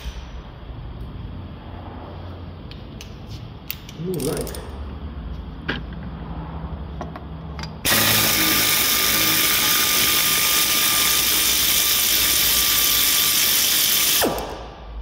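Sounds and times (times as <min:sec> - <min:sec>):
air ratchet hissing and whining: 0:07.9 - 0:14.5.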